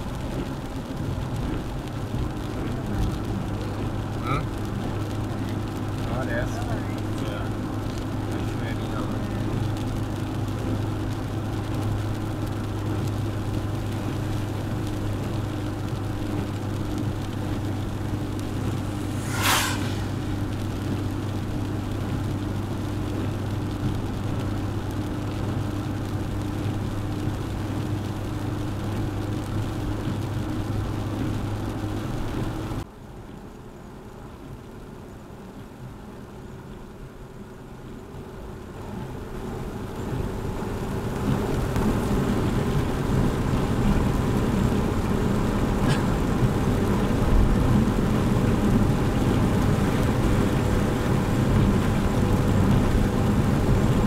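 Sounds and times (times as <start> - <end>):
car engine hum: 0.0 - 54.0
road noise: 0.0 - 54.0
brief sharp noise: 18.8 - 20.5.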